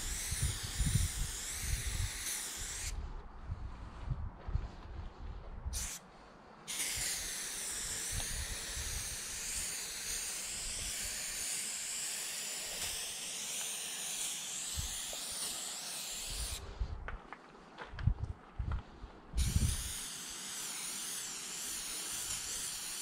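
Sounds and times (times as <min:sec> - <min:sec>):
spray can hissing: 0:00.0 - 0:03.0, 0:05.7 - 0:06.0, 0:06.7 - 0:16.6, 0:19.4 - 0:23.0.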